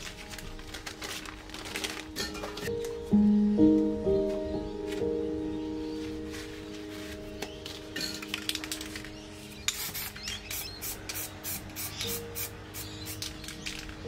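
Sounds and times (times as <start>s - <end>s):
spray paint can hissing: 9.7s - 13.8s.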